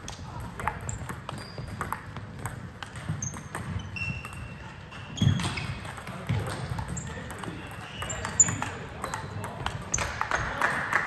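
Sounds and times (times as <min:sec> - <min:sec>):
shoe squeaks: 0:00.9 - 0:02.0, 0:03.0 - 0:05.9, 0:06.8 - 0:09.2.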